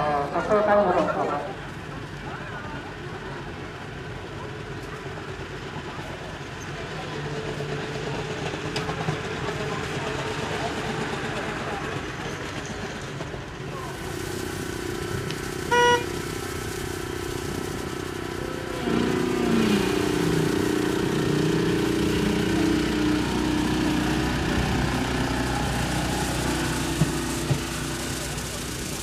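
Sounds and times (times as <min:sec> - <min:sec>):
rail cart motor running: 0:00.0 - 0:29.0
short horn toot: 0:15.7 - 0:16.2.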